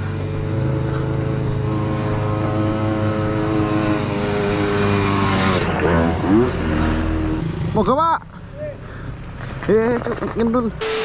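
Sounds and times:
motorcycle engine running: 0:00.0 - 0:06.5.

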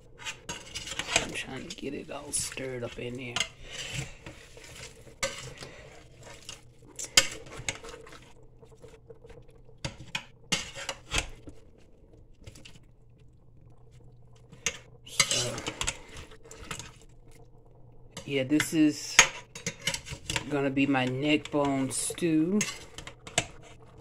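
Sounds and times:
spoon scraping metal pot: 0:00.0 - 0:08.4, 0:09.8 - 0:11.5, 0:14.5 - 0:17.0, 0:18.2 - 0:24.0
faint steady hum: 0:00.0 - 0:24.0.

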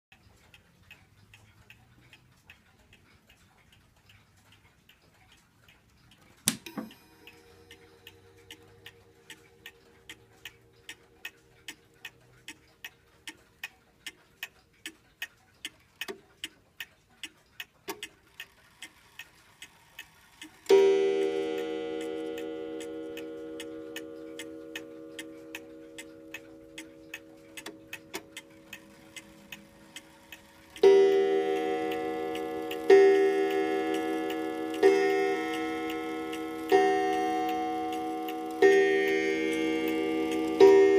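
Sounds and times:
clock ticking: 0:00.1 - 0:40.9
clock striking ringing tone: 0:06.7 - 0:11.5, 0:20.7 - 0:40.9.

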